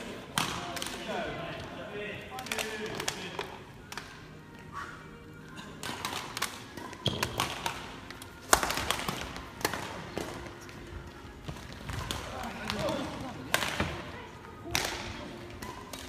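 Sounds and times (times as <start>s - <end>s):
rackets striking shuttlecock: 5.8s - 10.8s, 14.7s - 16.0s.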